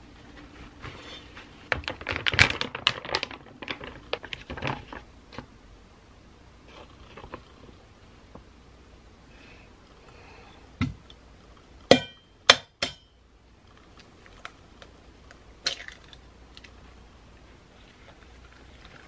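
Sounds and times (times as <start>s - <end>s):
metal bowl knocking and clinking: 11.9s - 13.1s
egg cracking on bowl rim: 14.3s - 16.7s.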